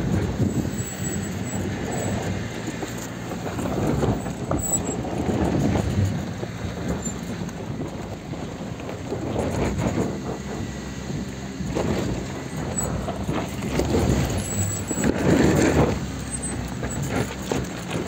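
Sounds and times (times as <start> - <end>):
low vehicle rumble: 0.0 - 18.0
suspension and body clatter: 0.0 - 18.0
tyres crunching over stones: 11.3 - 18.0.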